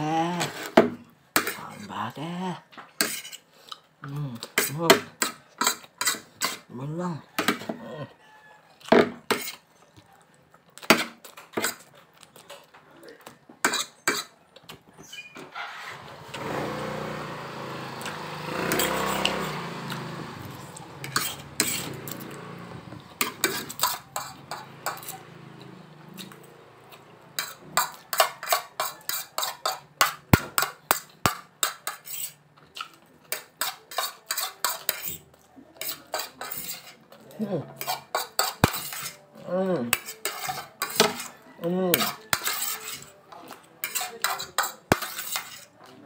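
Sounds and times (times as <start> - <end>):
forks clinking on a ceramic plate: 43.8 - 45.7.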